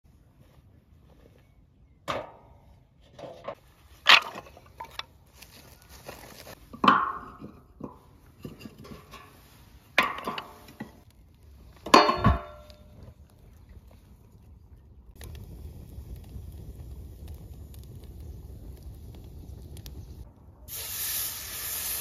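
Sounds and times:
firewood sticks clattering: 0:02.1 - 0:13.1.

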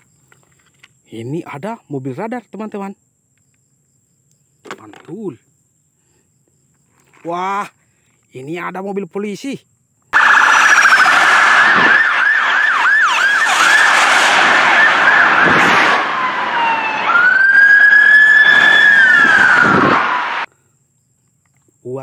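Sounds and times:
police siren yelp and wail: 0:10.2 - 0:20.5.

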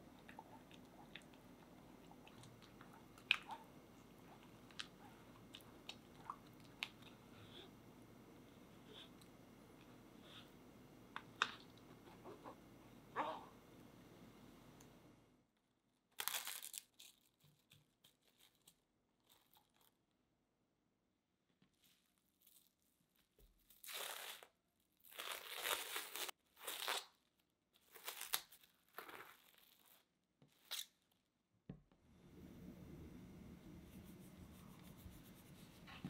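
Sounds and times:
cling film crinkling: 0:23.7 - 0:30.9.

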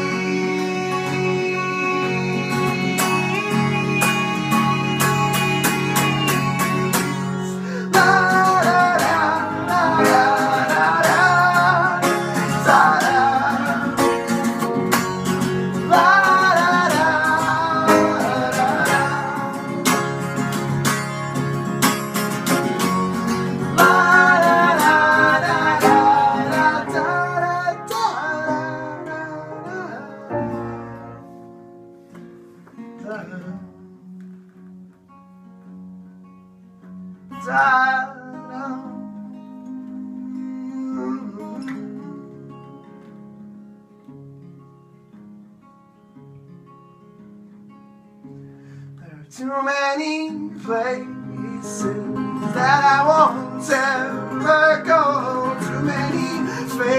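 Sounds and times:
wordless singing: 0:00.0 - 0:20.6, 0:23.2 - 0:31.2, 0:37.4 - 0:42.5, 0:49.0 - 0:56.9
strummed guitar: 0:00.0 - 0:56.9.

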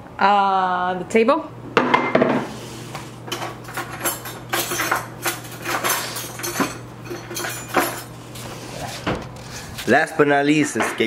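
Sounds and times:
dishes and cutlery clinking: 0:03.2 - 0:08.2, 0:10.6 - 0:11.0.

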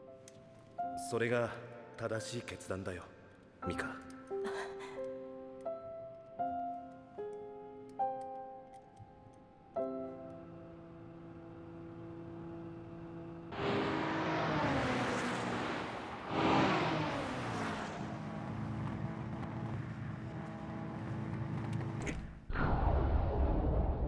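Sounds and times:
engine held at high revs: 0:11.4 - 0:22.0
sports cars rushing past: 0:11.5 - 0:22.0
deep rumble: 0:22.5 - 0:24.0.

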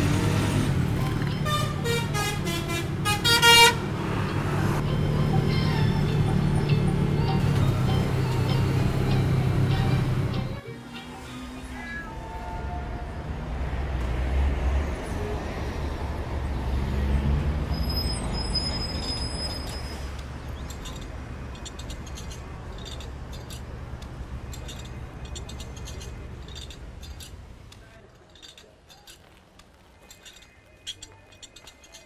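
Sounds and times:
auto-rickshaw engine rumbling: 0:00.0 - 0:32.0.

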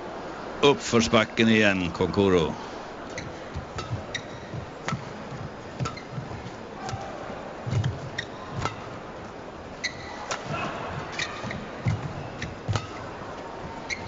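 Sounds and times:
footfalls on court: 0:03.2 - 0:08.8
rackets striking shuttlecock: 0:03.6 - 0:05.1.

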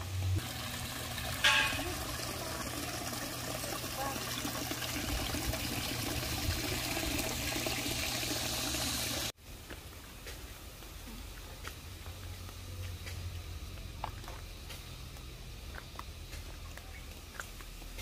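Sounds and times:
fountain water trickling and splashing: 0:00.0 - 0:09.4.

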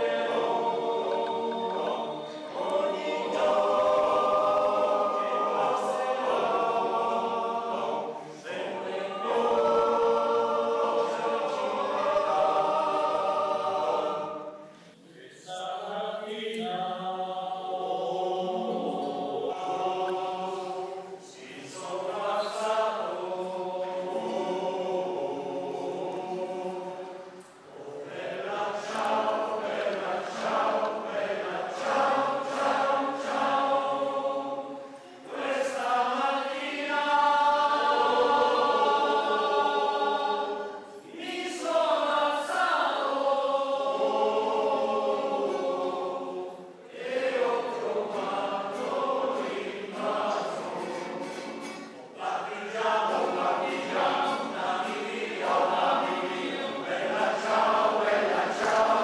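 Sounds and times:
choir singing held chords: 0:00.0 - 0:59.0.

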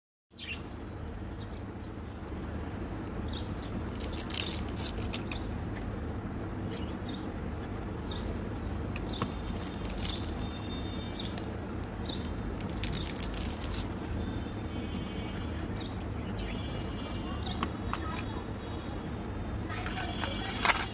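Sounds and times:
foil wrapper crinkling and tearing: 0:03.9 - 0:05.4, 0:09.4 - 0:10.5, 0:11.3 - 0:14.0, 0:19.8 - 0:20.9.

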